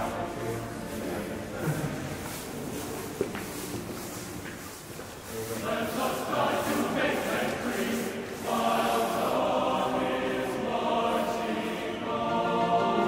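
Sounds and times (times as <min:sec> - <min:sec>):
choir chanting: 0:00.0 - 0:02.1, 0:05.3 - 0:13.0.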